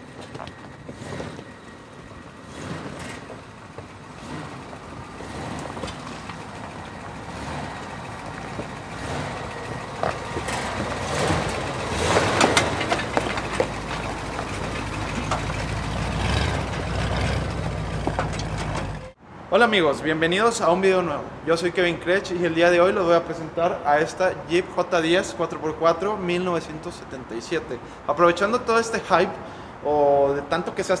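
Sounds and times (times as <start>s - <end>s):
tyres crunching over stones: 0.0s - 1.8s, 2.7s - 19.0s
truck engine running slowly: 0.0s - 19.2s.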